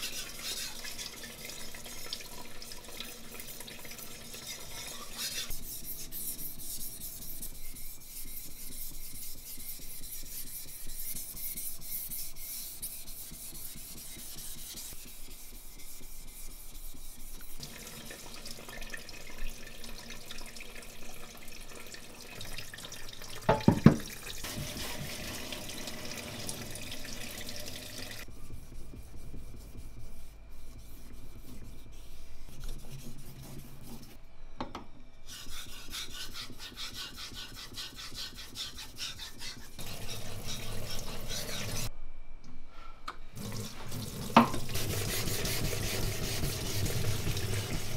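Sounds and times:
knife on whetstone: 4.4 - 7.6, 35.3 - 41.9
sink water running: 17.6 - 28.3, 39.8 - 41.9, 43.4 - 47.9.

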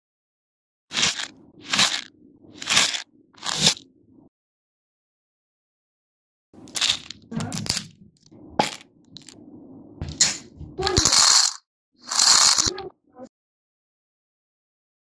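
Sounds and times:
candies clattering into a bowl: 0.9 - 3.8, 6.6 - 8.0, 10.8 - 12.8.

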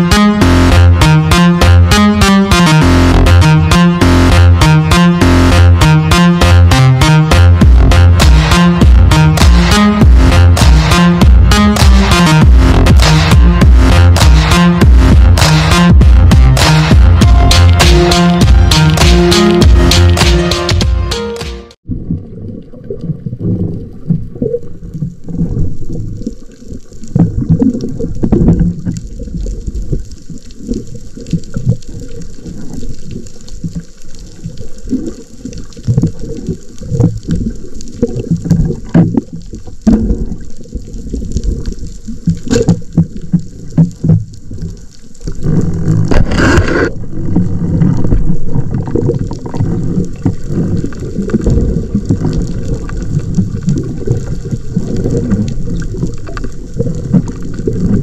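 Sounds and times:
underwater rumble of moving water: 21.8 - 58.0.

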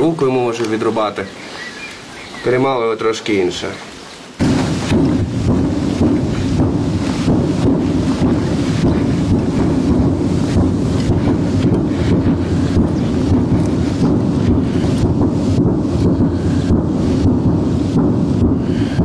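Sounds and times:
irregular hiss: 0.0 - 19.0
low rumble: 4.4 - 19.0.

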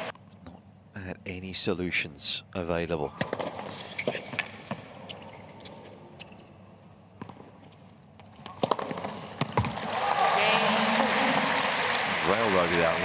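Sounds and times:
tennis ball struck by rackets: 8.5 - 9.7.

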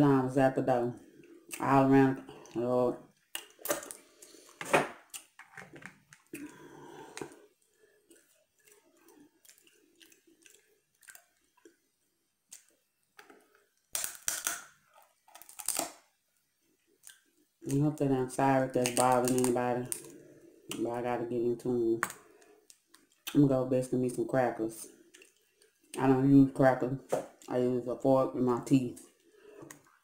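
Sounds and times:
chewing and wet smacking: 3.2 - 4.4, 8.0 - 11.8, 12.5 - 13.6, 22.1 - 23.4, 25.0 - 26.0
crab shell cracking between teeth: 13.9 - 16.0.

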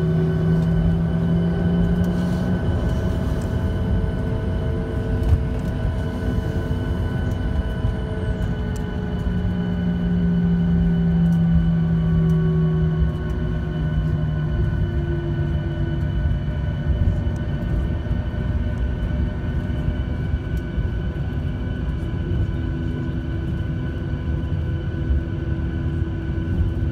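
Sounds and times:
aircraft rolling rumble: 0.0 - 26.9
jet engines idling: 0.0 - 26.9.

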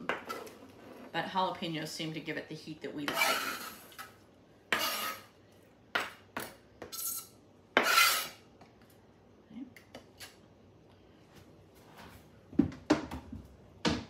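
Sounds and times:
knife scraping cutting board: 3.1 - 4.1, 4.7 - 5.3, 6.9 - 8.4.

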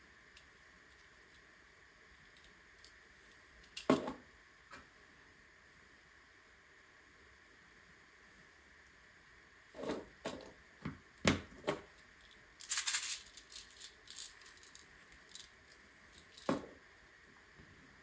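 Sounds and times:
plastic pieces scraping rattle: 12.2 - 16.6
plastic bricks clicking together: 12.6 - 15.6.

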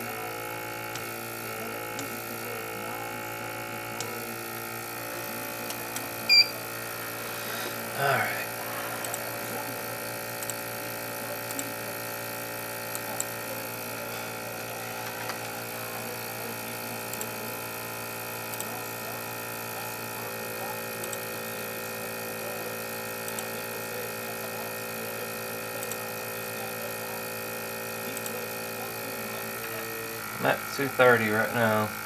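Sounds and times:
fan humming: 0.0 - 9.7, 28.8 - 32.0.

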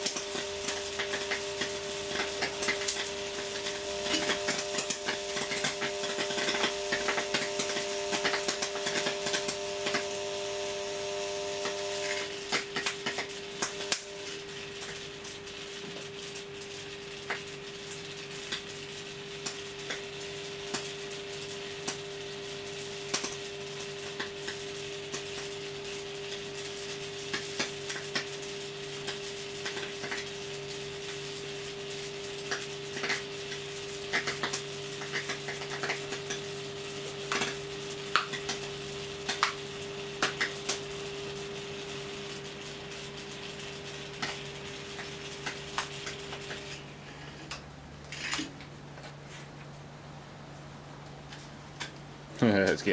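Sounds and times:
electric arcs crackling: 0.0 - 49.9, 50.5 - 52.9
steady electrical hum: 0.0 - 52.9.

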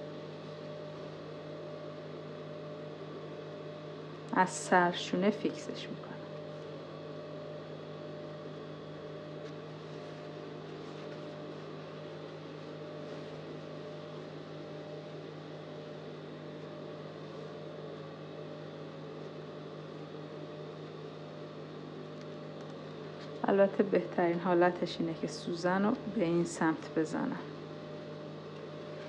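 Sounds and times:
fabric rustling: 9.4 - 11.7.

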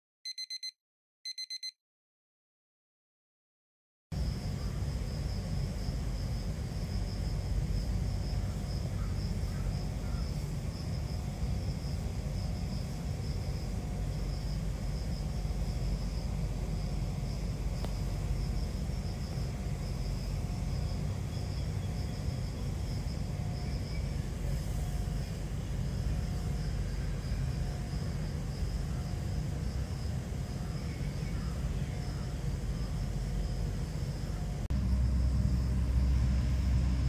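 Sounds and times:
insects chirring: 4.2 - 37.0
low outdoor rumble: 4.2 - 37.0.

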